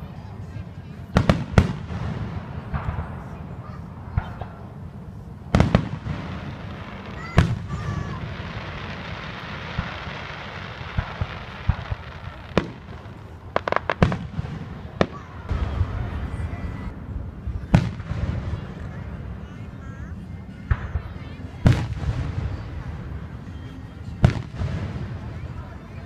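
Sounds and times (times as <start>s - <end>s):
fireworks bangs: 1.0s - 16.9s, 17.5s - 19.4s, 20.6s - 26.0s
fireworks pops and crackles: 1.1s - 4.8s, 5.5s - 16.4s, 20.7s - 23.5s, 24.2s - 25.6s.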